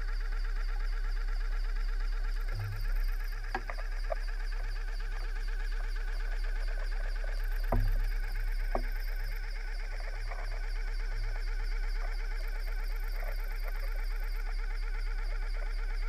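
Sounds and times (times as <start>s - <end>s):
mechanical hum with warbling tones: 0.0s - 16.0s
knock with low thump: 2.5s - 3.8s, 7.6s - 9.1s.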